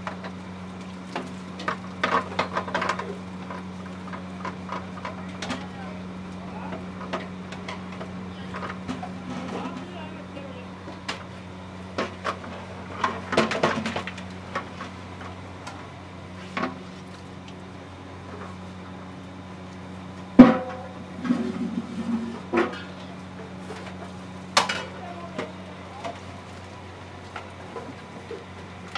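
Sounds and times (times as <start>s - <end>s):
steady low hum: 0.0s - 28.9s.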